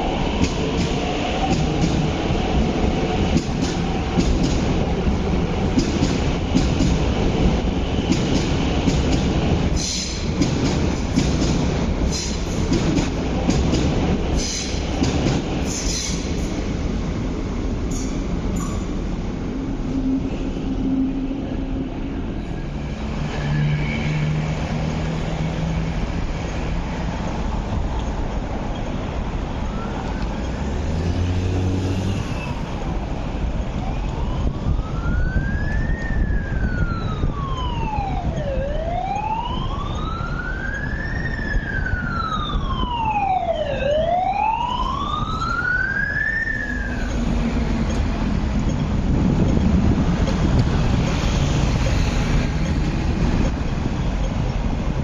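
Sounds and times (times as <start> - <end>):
emergency siren wailing: 29.6 - 30.4, 33.8 - 47.9.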